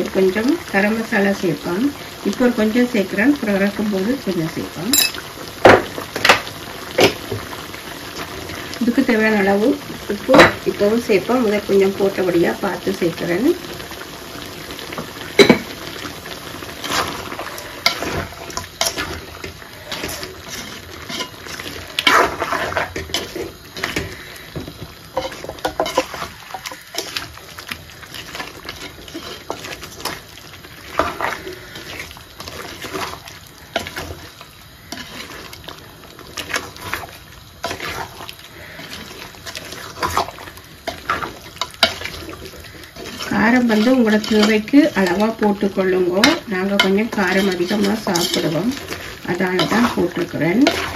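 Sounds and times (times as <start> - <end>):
wet scraping and squelching: 16.8 - 24.3, 25.2 - 45.0.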